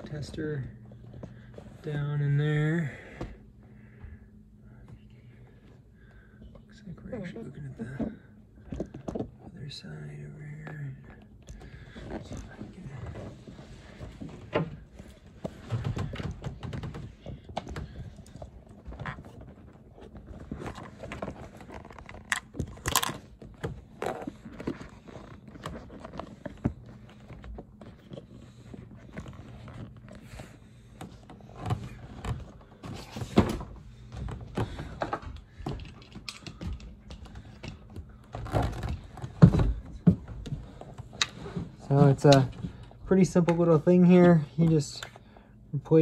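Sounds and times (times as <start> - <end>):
handling thunks and clicks: 7.8 - 9.6, 10.5 - 45.3.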